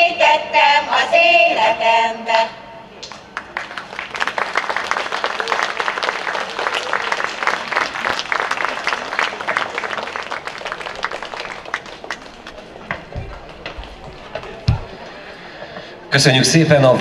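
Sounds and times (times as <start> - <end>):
audience applauding: 3.1 - 15.6.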